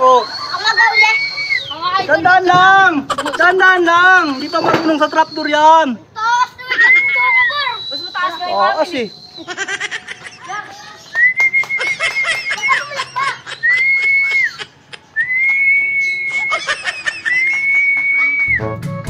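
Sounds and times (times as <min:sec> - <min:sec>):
laughter: 0:03.0 - 0:04.0, 0:06.6 - 0:07.2, 0:09.4 - 0:10.8, 0:11.6 - 0:15.0, 0:16.3 - 0:18.4
person whistling long notes: 0:15.2 - 0:16.7, 0:17.3 - 0:18.8.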